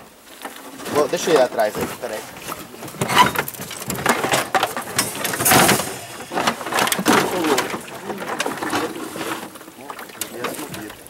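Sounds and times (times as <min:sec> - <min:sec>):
water splashing against boat: 0:00.1 - 0:11.0
fish splashing: 0:03.5 - 0:11.0.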